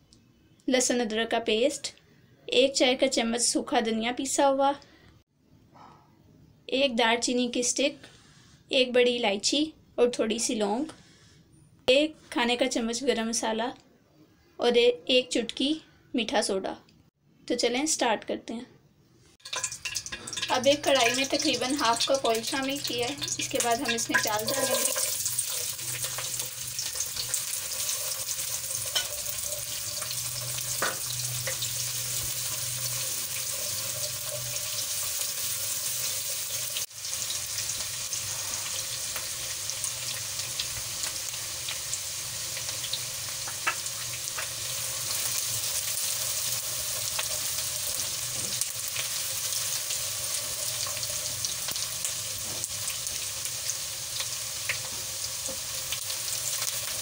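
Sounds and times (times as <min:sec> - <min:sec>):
onions sizzling in hot oil: 0:19.4 - 0:57.0
spatula scraping a pan: 0:23.1 - 0:36.6.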